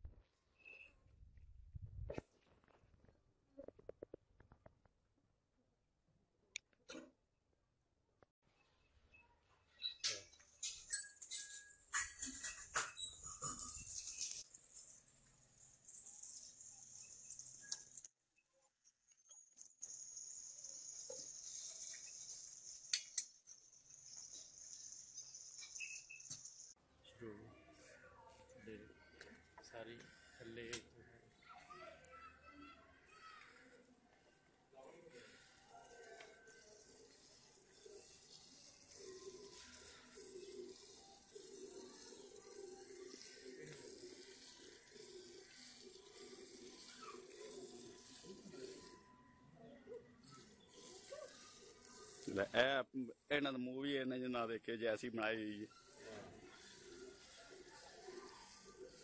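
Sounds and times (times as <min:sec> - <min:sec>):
insect chirring: 0:19.2 - 0:26.8.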